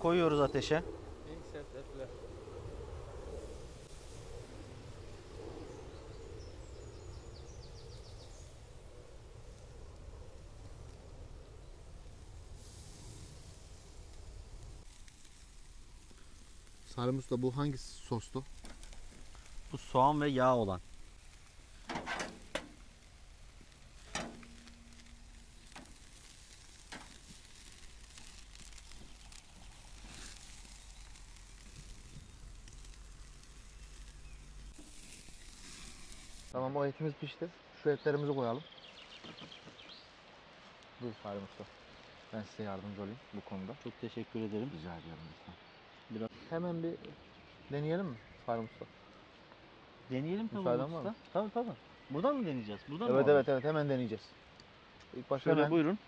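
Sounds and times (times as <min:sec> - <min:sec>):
meat sizzling on grill: 0:00.0 - 0:36.6.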